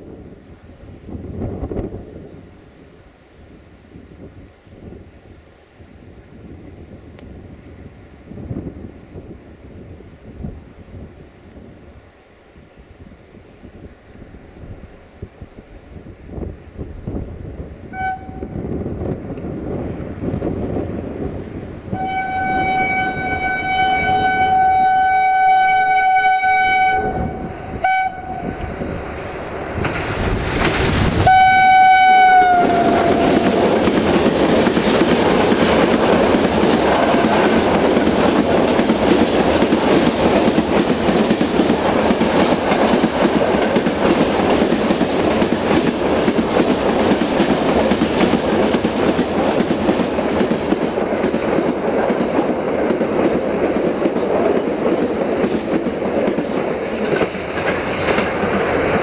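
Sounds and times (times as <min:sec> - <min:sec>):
locomotive horn blasts: 0:17.9 - 0:18.6, 0:21.9 - 0:28.7, 0:31.2 - 0:33.6
train wheels clattering on rails: 0:28.4 - 0:59.0.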